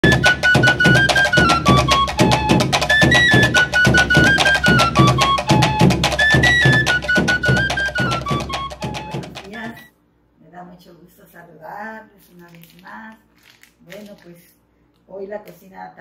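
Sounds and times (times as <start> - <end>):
upbeat instrumental music: 0.0 - 9.9.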